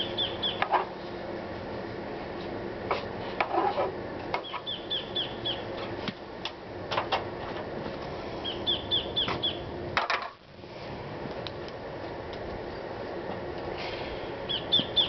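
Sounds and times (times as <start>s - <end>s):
bird chirping: 0.0s - 0.6s, 4.4s - 5.7s, 8.4s - 9.7s, 14.5s - 15.0s
low background hum: 0.0s - 15.0s.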